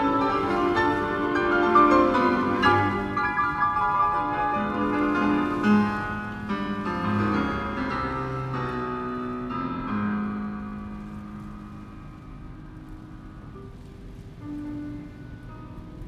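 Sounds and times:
piano music over car speakers: 0.0s - 16.0s.

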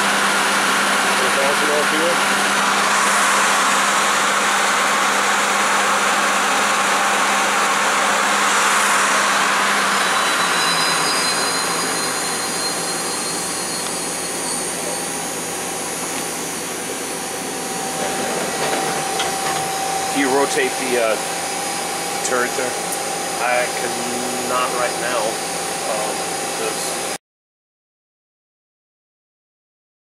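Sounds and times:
lathe running with whir: 0.0s - 27.2s
thin high whines: 0.8s - 27.1s
low hum: 2.1s - 25.0s.

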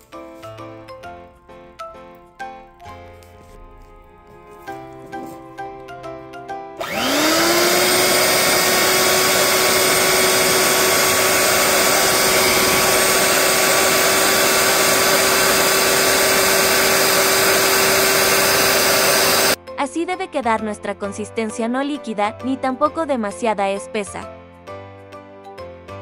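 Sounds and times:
electric hand mixer whine: 6.8s - 19.6s.

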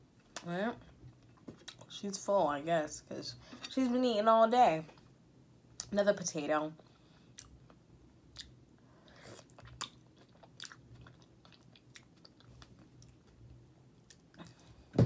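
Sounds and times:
person chewing: 7.3s - 13.4s.

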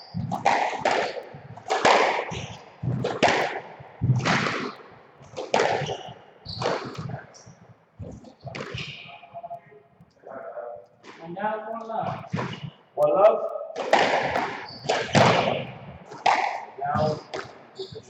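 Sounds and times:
rackets striking ball: 0.0s - 10.2s, 12.0s - 12.8s, 13.8s - 18.0s
squash ball cracks off walls: 0.2s - 4.8s, 5.4s - 7.2s, 13.8s - 17.6s.

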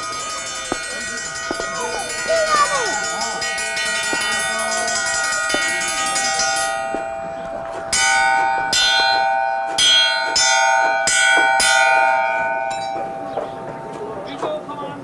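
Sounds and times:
metal bell ringing: 0.0s - 14.2s.

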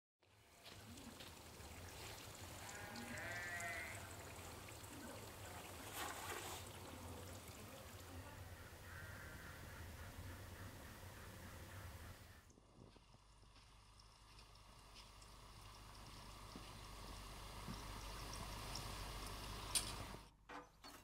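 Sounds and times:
livestock bleating: 2.6s - 4.2s.

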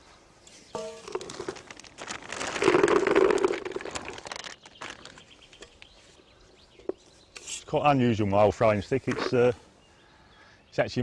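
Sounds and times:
bait pellets rattling in plastic bucket: 1.0s - 5.6s.

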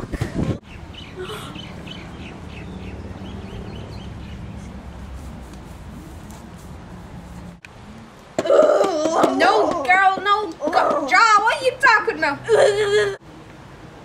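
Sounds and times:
birds chirping: 0.6s - 4.9s.

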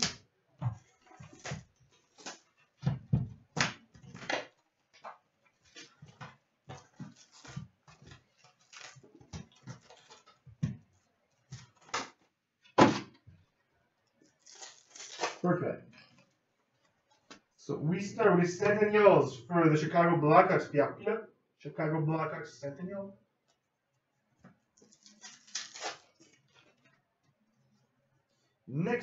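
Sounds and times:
packaging rustles scrapes and taps: 3.8s - 12.2s.

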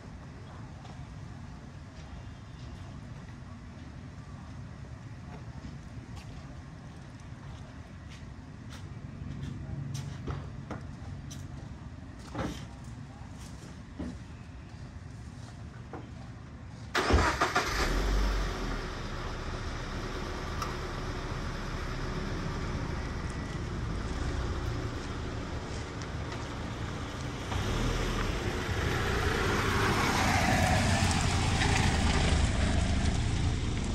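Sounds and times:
car engine starting: 16.9s - 33.9s
car engine idling: 17.0s - 33.9s
car passing close by: 26.9s - 33.9s.

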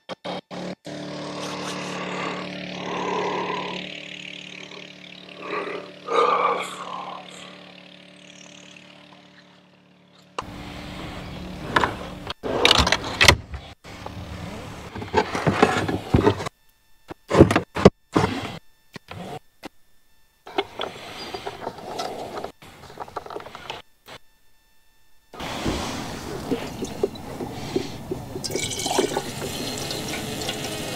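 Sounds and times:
steady low hum: 0.2s - 30.9s
man yawning: 1.4s - 3.9s, 5.4s - 7.6s.

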